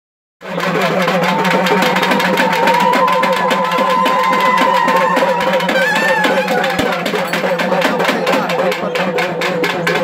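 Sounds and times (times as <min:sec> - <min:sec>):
fast steady drumming: 0:00.4 - 0:10.0
double-reed pipes melody: 0:04.9 - 0:07.6.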